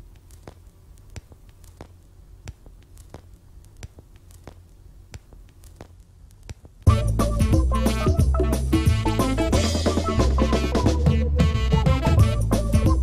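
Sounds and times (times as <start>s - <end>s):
film crackle clicks and pops: 0.0s - 6.9s.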